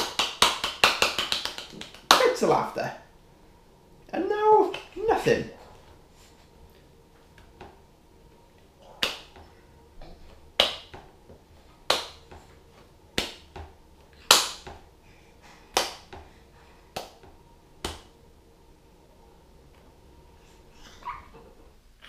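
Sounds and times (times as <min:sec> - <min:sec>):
hands clapping: 0:00.0 - 0:02.4, 0:09.0 - 0:09.4, 0:10.6 - 0:11.0, 0:11.9 - 0:12.3, 0:13.2 - 0:13.6, 0:14.2 - 0:14.8, 0:15.7 - 0:16.2, 0:17.0 - 0:17.2, 0:17.8 - 0:18.1.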